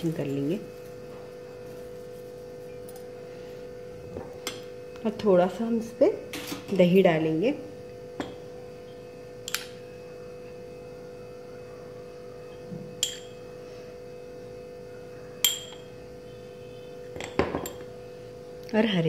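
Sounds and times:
steady hum: 0:00.0 - 0:19.0
spoon clinking on glass bowl: 0:13.0 - 0:13.4.

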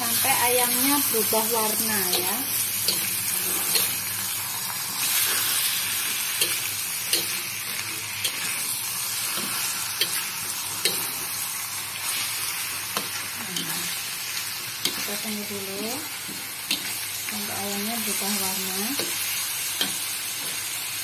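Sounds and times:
chicken sizzling in a wok: 0:00.0 - 0:21.0
spatula scraping and tapping pan: 0:06.4 - 0:07.4.

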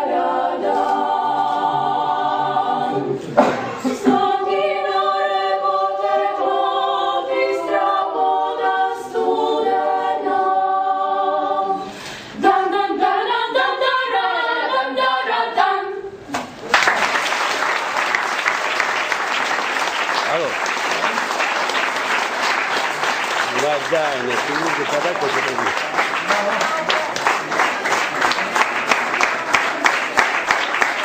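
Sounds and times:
a cappella harmony singing: 0:00.0 - 0:16.3
applause: 0:16.6 - 0:31.0.

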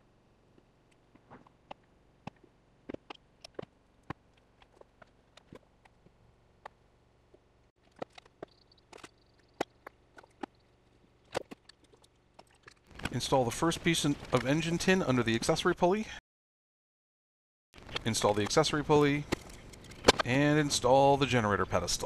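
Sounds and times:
small parts clicking and knocking: 0:00.5 - 0:13.2, 0:17.8 - 0:20.4.

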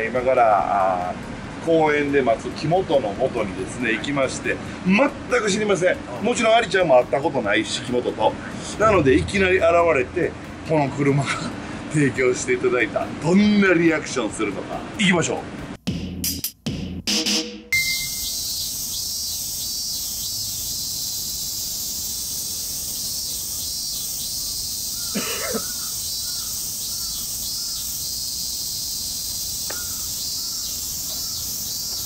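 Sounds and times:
cicadas buzzing: 0:17.8 - 0:32.0.

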